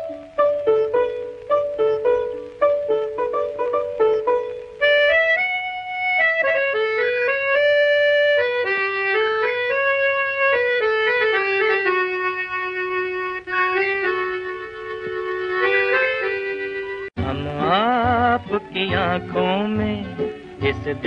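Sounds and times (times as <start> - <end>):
slow instrumental melody: 0.0 - 21.0.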